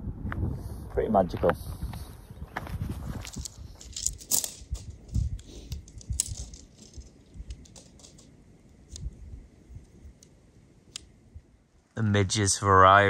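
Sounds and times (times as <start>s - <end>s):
light clicks and rattles: 3.1s - 11.1s.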